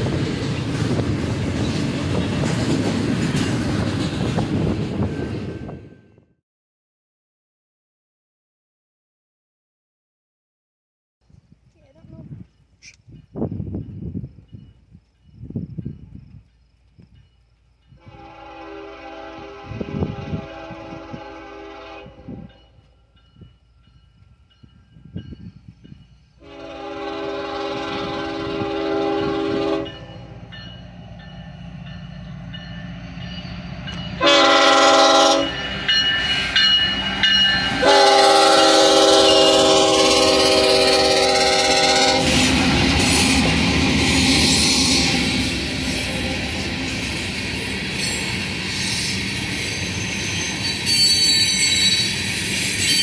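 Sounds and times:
train cars rumbling and clattering: 0:00.0 - 0:06.3, 0:11.8 - 0:53.0
locomotive horn blasts: 0:18.0 - 0:22.6, 0:26.4 - 0:30.2, 0:34.2 - 0:36.0, 0:37.7 - 0:43.2.

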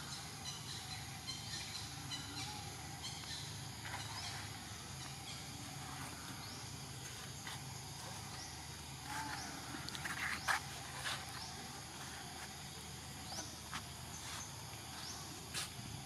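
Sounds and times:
insect drone: 0:00.0 - 0:16.0.

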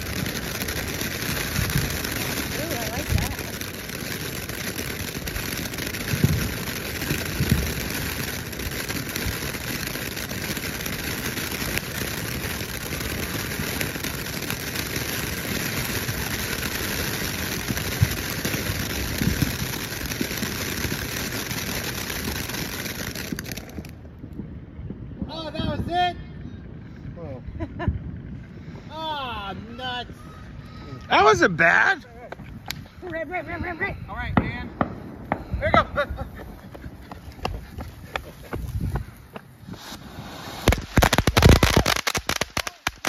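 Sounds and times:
firework fountain hissing: 0:00.0 - 0:24.1, 0:32.7 - 0:43.0
firework pops: 0:32.3 - 0:33.2, 0:34.4 - 0:35.6, 0:36.4 - 0:43.0.

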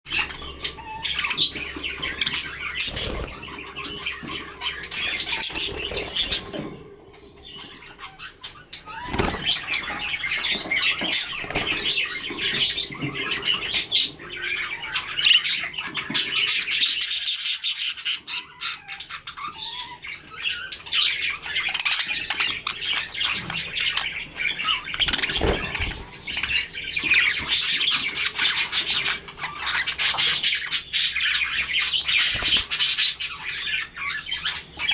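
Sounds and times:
budgerigars chattering and chirping: 0:00.1 - 0:34.9
wings fluttering: 0:02.1 - 0:03.6, 0:08.9 - 0:12.0, 0:25.0 - 0:26.6, 0:32.2 - 0:32.8.

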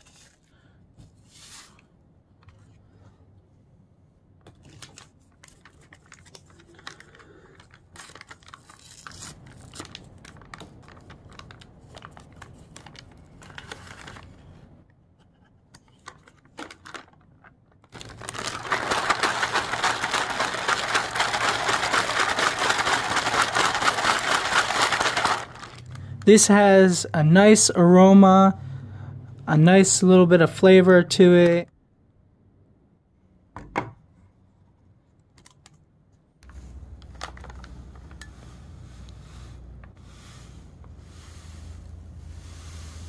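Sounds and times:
packets tearing: 0:04.6 - 0:14.4, 0:17.9 - 0:26.1
plastic bag crinkling: 0:04.6 - 0:14.4, 0:16.1 - 0:26.1, 0:36.5 - 0:38.3
bag shaken with dense crinkling: 0:17.9 - 0:26.0.

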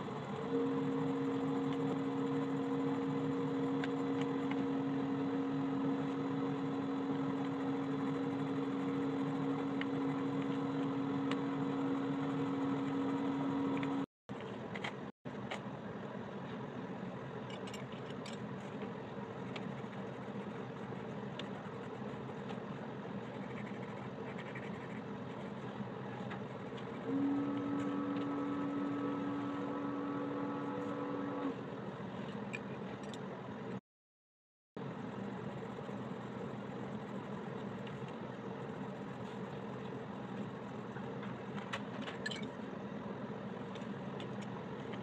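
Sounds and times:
steady background hum: 0:00.0 - 0:33.8, 0:34.8 - 0:45.0
pencil shading on paper: 0:19.5 - 0:27.0.

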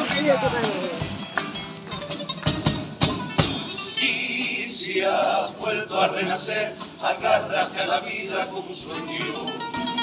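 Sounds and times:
guitars: 0:00.0 - 0:10.0
sharp drum beats: 0:00.0 - 0:10.0
male chorus singing: 0:04.0 - 0:10.0.

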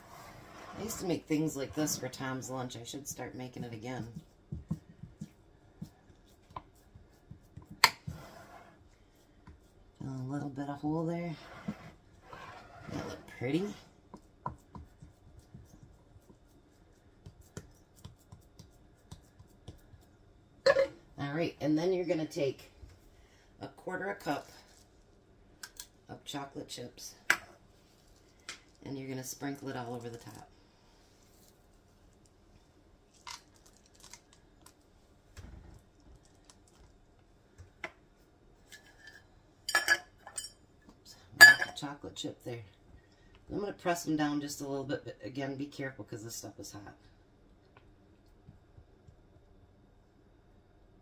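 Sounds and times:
glass clink: 0:20.7 - 0:21.0, 0:41.4 - 0:41.8.

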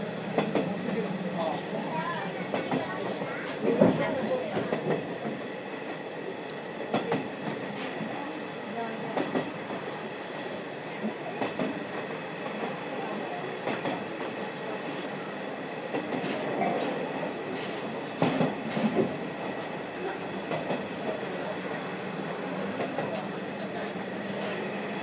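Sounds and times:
train rumbling: 0:00.0 - 0:25.0.

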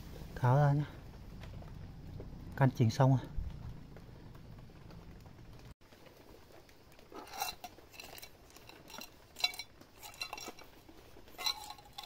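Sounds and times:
light metallic clinks: 0:07.2 - 0:12.0.

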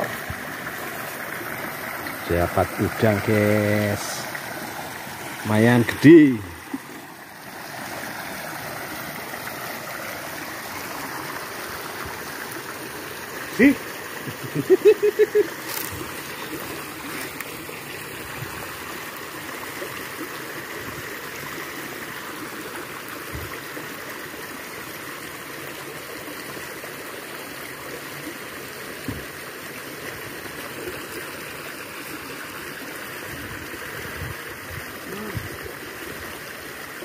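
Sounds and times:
stream rushing: 0:00.0 - 0:37.0
person's voice: 0:02.2 - 0:04.3, 0:05.4 - 0:06.6, 0:13.5 - 0:13.8, 0:35.0 - 0:35.5.

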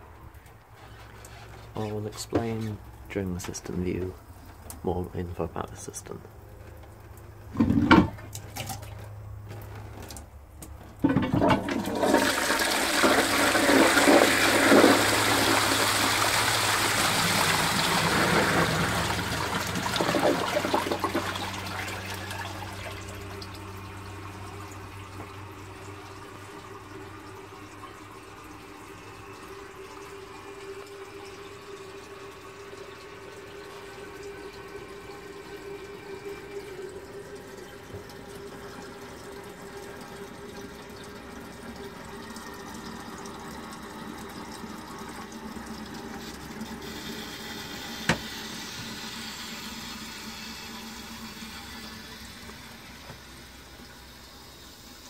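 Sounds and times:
water rushing into toilet bowl: 0:07.5 - 0:09.2, 0:11.0 - 0:55.0
cistern refilling hiss: 0:46.1 - 0:55.0.

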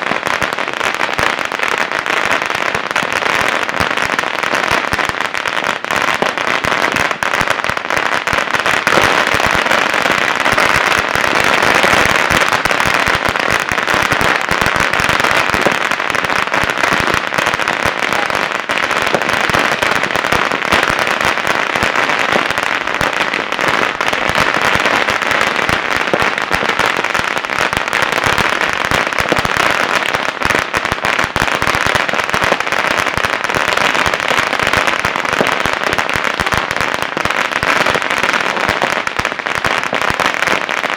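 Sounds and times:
firecrackers crackling: 0:00.0 - 0:40.9
fireworks bangs: 0:00.0 - 0:40.9.

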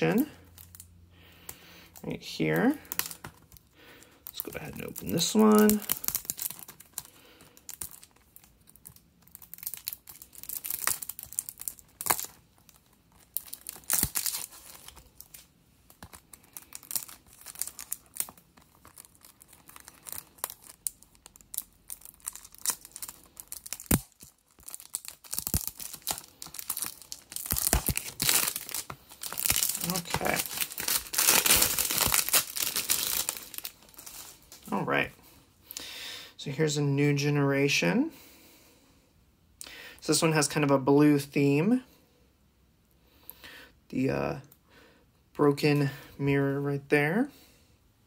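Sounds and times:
plastic shrink-wrap tearing: 0:02.2 - 0:03.6, 0:04.2 - 0:34.7.

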